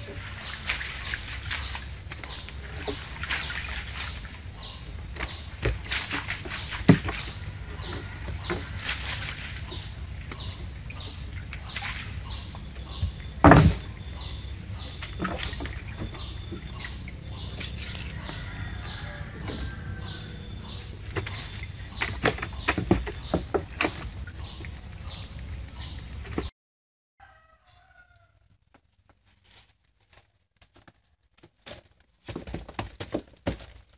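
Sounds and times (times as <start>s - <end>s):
high chirping: 0.0s - 26.5s.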